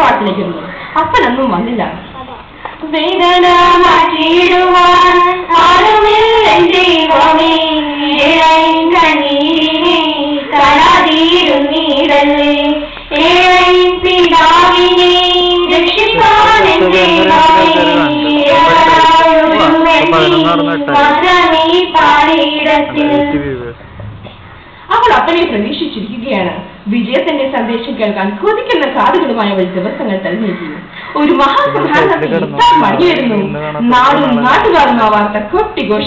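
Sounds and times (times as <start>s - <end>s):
girl singing into a microphone: 2.8s - 23.7s, 31.4s - 34.8s.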